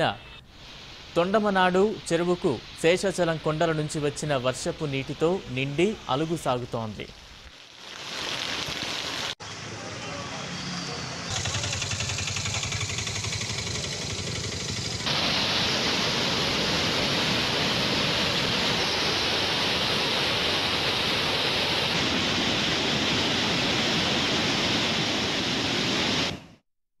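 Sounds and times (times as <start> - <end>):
vehicle on a wet road: 8.7 - 15.5
water rushing over a weir: 11.4 - 26.4.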